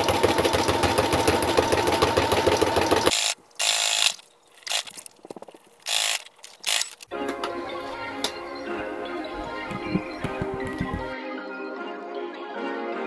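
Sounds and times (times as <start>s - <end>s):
sewing machine stitching: 0.0s - 4.8s
short bursts of noise: 3.1s - 7.1s.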